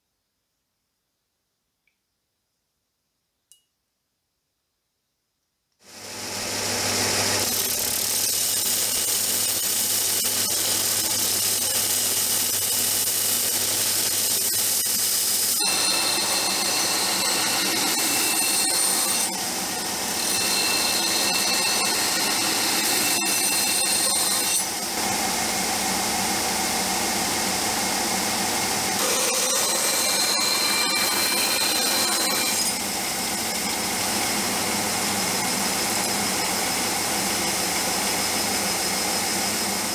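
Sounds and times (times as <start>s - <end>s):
belt grinder grinding steel: 7.0s - 25.0s, 28.9s - 34.2s.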